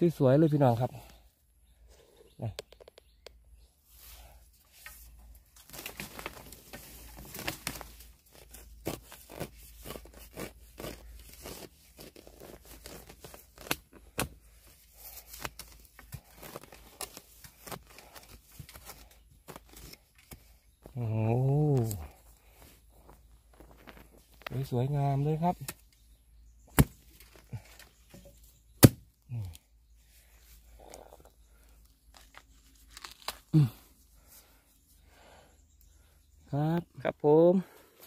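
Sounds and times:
sharp snaps and crunches: 0:04.6 - 0:26.0, 0:26.6 - 0:29.7, 0:30.5 - 0:34.3
dry leaves rustling and crackling: 0:05.4 - 0:13.4.

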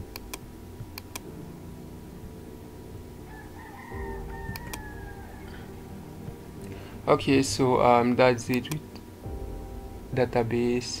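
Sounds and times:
computer mouse clicks: 0:00.1 - 0:01.3, 0:04.5 - 0:04.9, 0:08.5 - 0:09.1.

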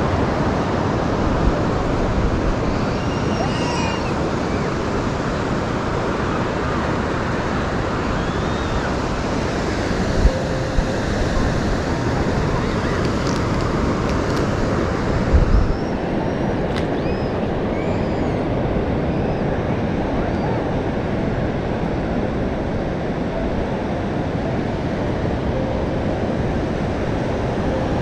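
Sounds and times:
surf rushing: 0:00.0 - 0:28.0
wind buffeting microphone: 0:00.0 - 0:28.0.

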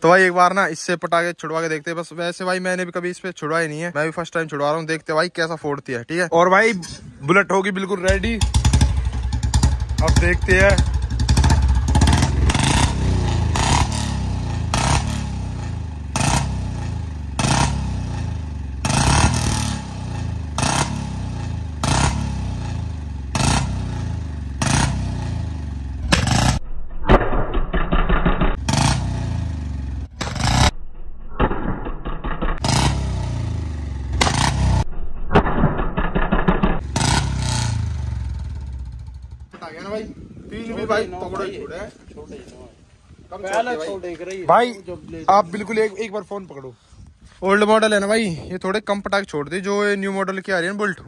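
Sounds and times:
exhaust pops and bangs: 0:08.1 - 0:18.2, 0:26.0 - 0:29.1, 0:34.1 - 0:37.7
motorcycle engine revving: 0:08.1 - 0:26.7, 0:27.4 - 0:39.6.

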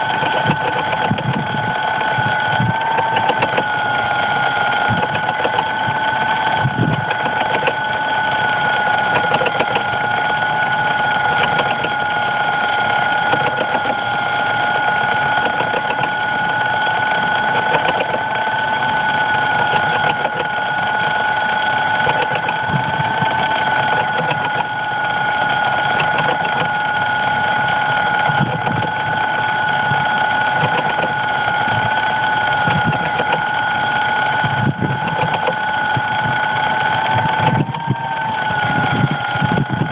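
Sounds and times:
drone motors whining: 0:00.0 - 0:39.9
faint irregular ticking: 0:12.9 - 0:21.2.

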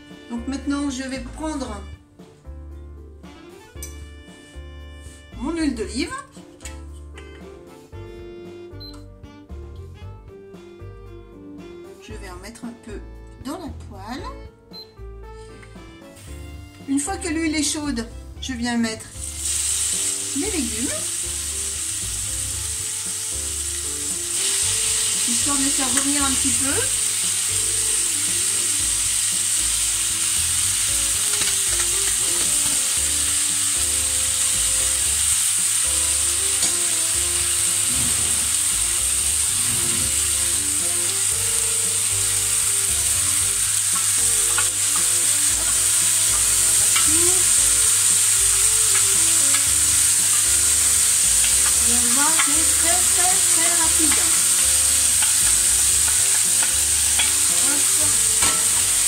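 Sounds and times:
vegetables sizzling in frying pan: 0:19.0 - 0:59.0.

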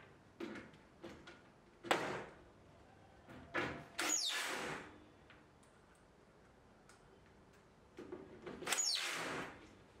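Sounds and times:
cordless drill bursts: 0:08.7 - 0:09.5.

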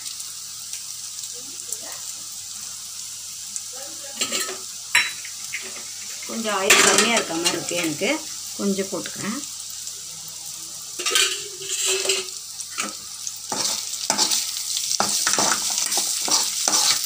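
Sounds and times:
onions sizzling in hot oil: 0:00.0 - 0:17.0
metal utensil scraping a pan: 0:04.2 - 0:08.2, 0:11.0 - 0:17.0.

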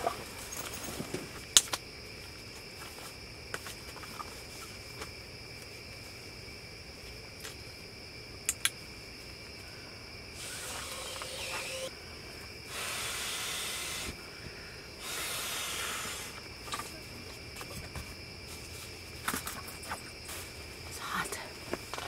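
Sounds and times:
crickets chirping: 0:00.0 - 0:22.0
hissing sounds: 0:10.4 - 0:11.9.

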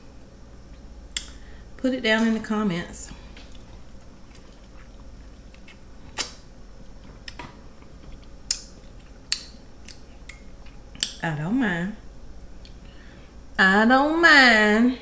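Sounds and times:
person chewing and smacking: 0:03.2 - 0:11.2, 0:12.3 - 0:12.9
sharp wet clicks: 0:08.5 - 0:11.2.

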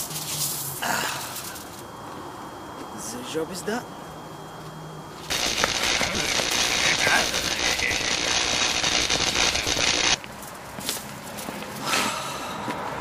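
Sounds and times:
electric crackling and sparking: 0:05.3 - 0:10.2.

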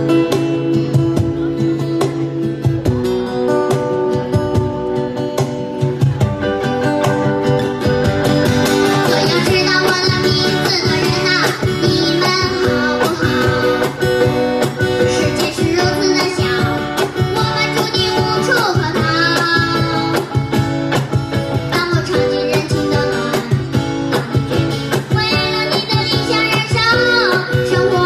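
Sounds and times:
acoustic guitar: 0:00.0 - 0:28.0
cajon beat: 0:00.0 - 0:28.0
child singing: 0:08.8 - 0:20.5, 0:21.5 - 0:28.0.

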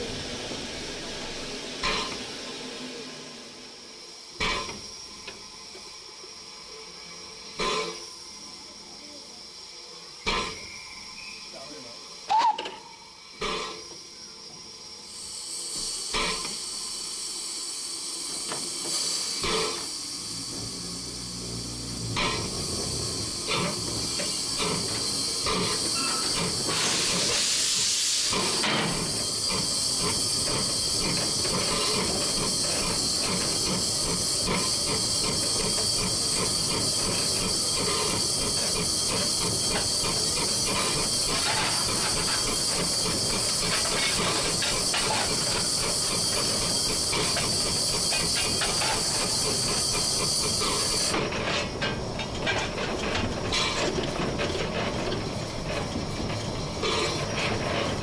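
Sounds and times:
steam hissing: 0:00.0 - 0:52.2
loud burst of steam: 0:14.7 - 0:51.3.

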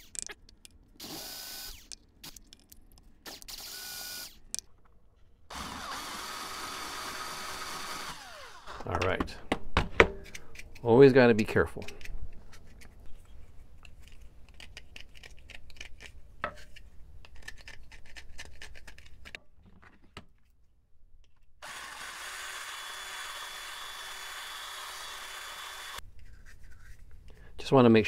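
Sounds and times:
electric drill running: 0:01.0 - 0:02.0, 0:03.3 - 0:04.4, 0:05.5 - 0:08.8, 0:21.6 - 0:26.0
knife scraping plastic: 0:11.8 - 0:19.4.

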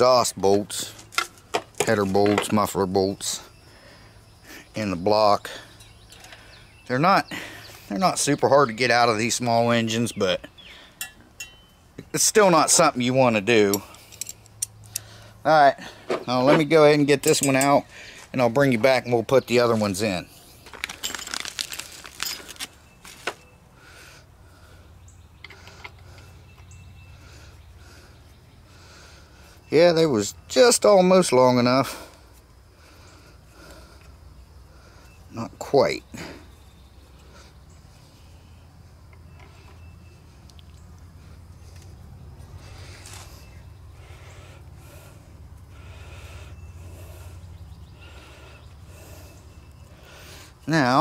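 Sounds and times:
light metal clicks and clinks: 0:11.0 - 0:11.8, 0:13.6 - 0:15.2, 0:17.2 - 0:17.8
steady low hum: 0:31.8 - 0:50.6.

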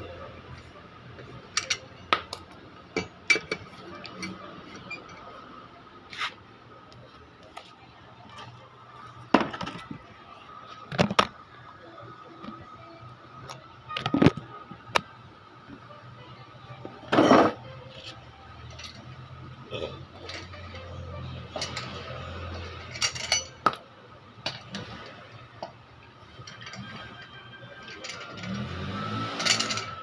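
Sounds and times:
lug wrench clinking on lug nuts: 0:01.5 - 0:05.3, 0:20.2 - 0:23.8, 0:27.8 - 0:30.0.

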